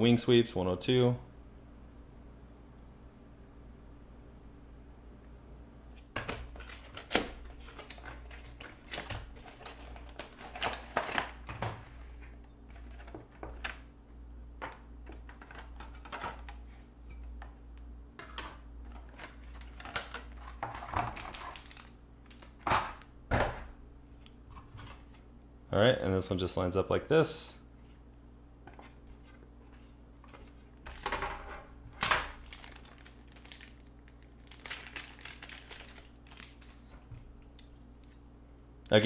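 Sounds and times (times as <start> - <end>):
plastic packaging crinkling: 6.2 - 13.8, 18.8 - 22.7, 32.1 - 37.0.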